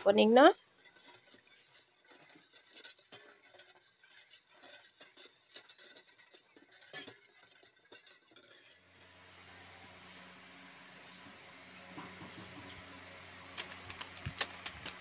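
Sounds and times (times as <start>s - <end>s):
spoon stirring in metal bowl: 0.6s - 9.1s.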